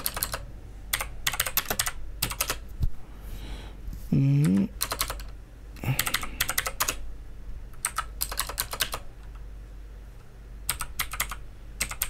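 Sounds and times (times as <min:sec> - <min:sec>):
keyboard typing: 0:00.0 - 0:02.6, 0:04.4 - 0:07.0, 0:07.8 - 0:09.4, 0:10.7 - 0:12.0.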